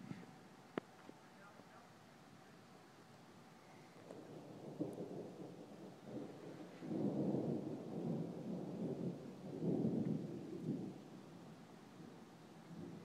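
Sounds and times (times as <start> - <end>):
thunder rumbling: 4.1 - 13.0.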